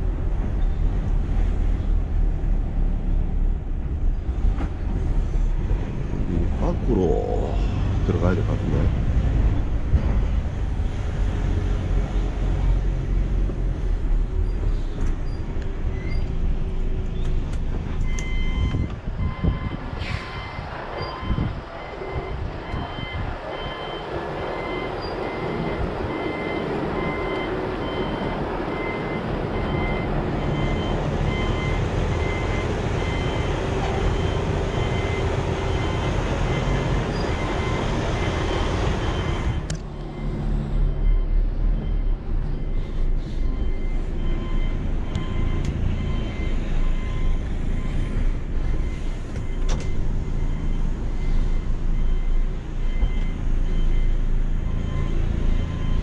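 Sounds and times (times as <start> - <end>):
reversing alarm beeping: 18.0 - 56.0.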